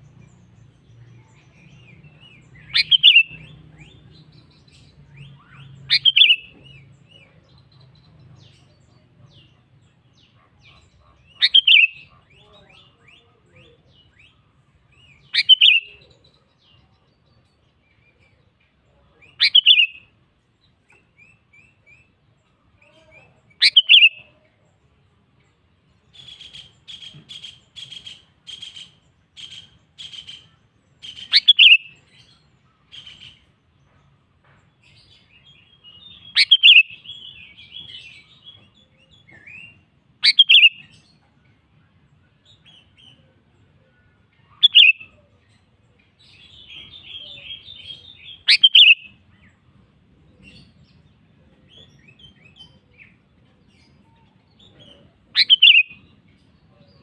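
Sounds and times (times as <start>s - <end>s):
loud sharp bird calls: 2.1s - 6.9s, 15.3s - 16.0s, 19.3s - 20.0s, 23.6s - 24.2s, 26.1s - 33.5s, 35.9s - 38.3s, 39.1s - 41.1s, 44.6s - 45.2s, 46.4s - 49.3s, 54.6s - 56.1s
bird chattering: 2.6s - 3.5s, 5.9s - 6.5s, 10.8s - 12.4s, 15.4s - 16.0s, 19.3s - 20.0s, 23.6s - 24.2s, 26.2s - 32.0s, 36.2s - 37.1s, 40.2s - 40.9s, 44.6s - 45.2s, 47.0s - 49.2s, 55.4s - 56.0s
bird singing short notes: 55.4s - 55.9s.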